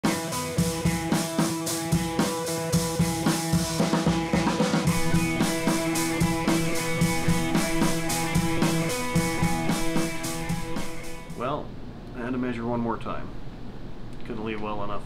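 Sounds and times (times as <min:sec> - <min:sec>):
held instrumental notes: 0:00.0 - 0:11.4
steady drum beat: 0:00.0 - 0:11.4.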